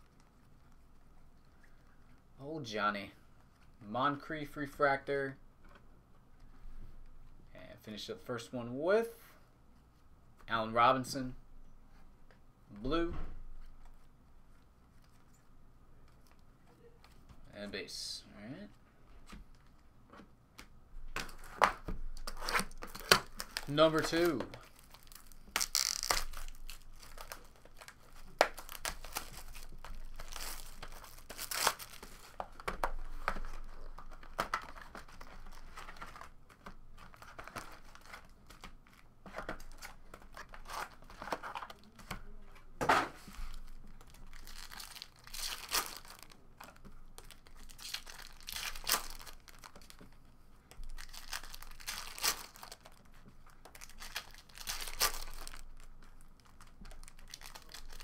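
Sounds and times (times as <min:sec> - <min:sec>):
foil packs crinkling and tearing: 0:22.2 - 0:32.5, 0:43.6 - 0:50.0, 0:50.8 - 0:58.0.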